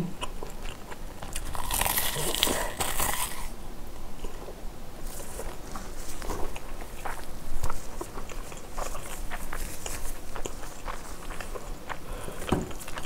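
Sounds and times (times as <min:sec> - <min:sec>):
soft chewing: 0:00.0 - 0:13.0
seaweed crunching: 0:01.3 - 0:03.5.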